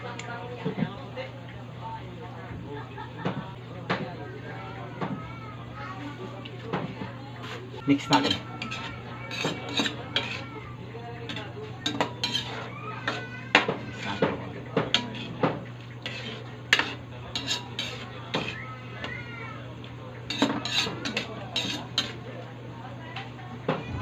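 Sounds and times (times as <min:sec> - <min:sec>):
spoon scraping metal wok: 0:07.4 - 0:10.6, 0:11.2 - 0:18.6, 0:20.3 - 0:22.2.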